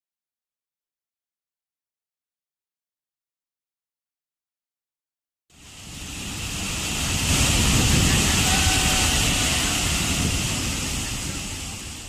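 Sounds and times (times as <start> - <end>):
waterfall rushing: 5.5 - 12.0.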